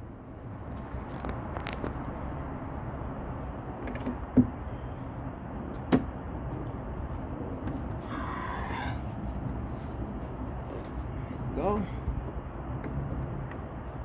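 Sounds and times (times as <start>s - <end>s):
gas strut clicks and knocks: 5.7s - 6.1s.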